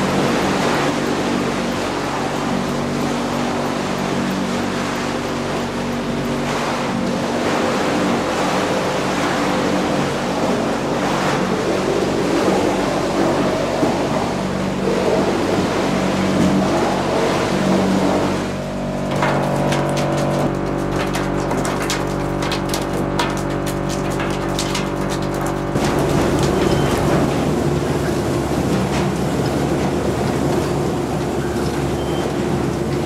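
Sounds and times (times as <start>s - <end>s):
machinery humming: 0.0s - 33.0s
wood chips pouring through chute: 18.8s - 30.5s.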